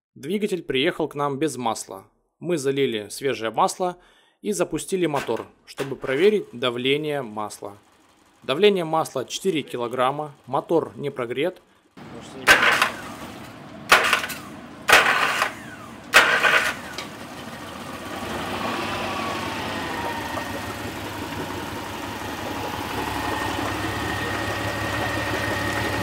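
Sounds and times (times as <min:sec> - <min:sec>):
outboard engine cranking: 0:05.1 - 0:26.0
outboard engine running unevenly: 0:06.1 - 0:11.0, 0:11.6 - 0:26.0
water churning: 0:12.0 - 0:26.0.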